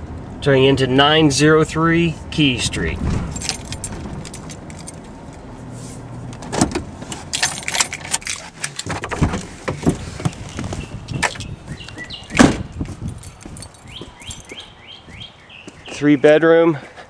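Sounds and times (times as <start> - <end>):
car door opening: 2.8 - 5.2, 6.3 - 13.7
car door shutting hard: 2.9 - 4.5, 6.4 - 7.2, 8.8 - 11.4, 12.3 - 12.8
keys jangling: 3.3 - 5.1, 7.1 - 8.9, 12.9 - 14.8
birds chirping: 9.7 - 17.0.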